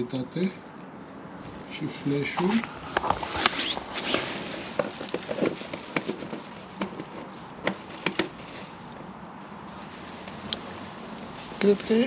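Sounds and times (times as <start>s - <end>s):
tent fabric and pad rustling: 2.5s - 7.5s, 9.7s - 12.0s.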